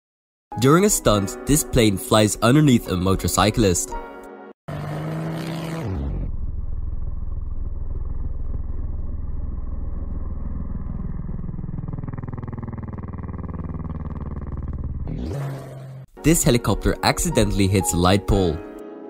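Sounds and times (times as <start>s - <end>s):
dirt bike engine: 4.7s - 16.1s
propeller biplane engine drone: 4.7s - 16.1s.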